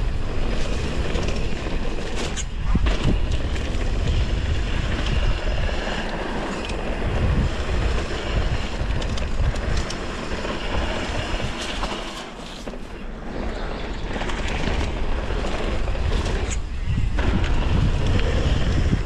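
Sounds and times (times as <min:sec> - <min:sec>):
bike clicks and rattles: 0:00.0 - 0:19.0
tyres rumbling over ground: 0:00.0 - 0:19.0
wind on microphone: 0:00.0 - 0:19.0.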